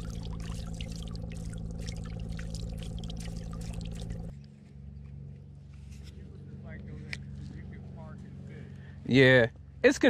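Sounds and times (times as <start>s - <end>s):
water lapping and splashing: 0.0s - 4.3s
low hum: 0.0s - 10.0s.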